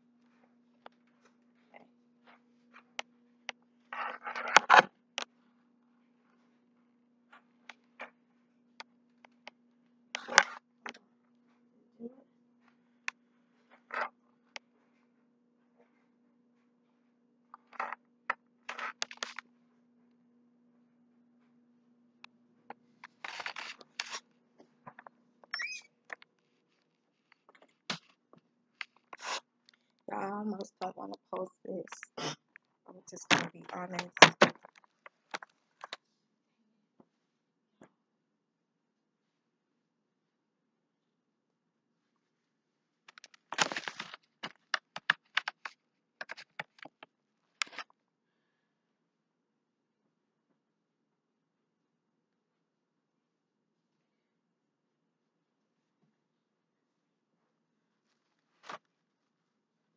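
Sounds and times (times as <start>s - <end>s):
faint steady hum: 0.0s - 59.9s
camera handling noise: 23.2s - 24.2s
short squeak: 25.5s - 25.9s.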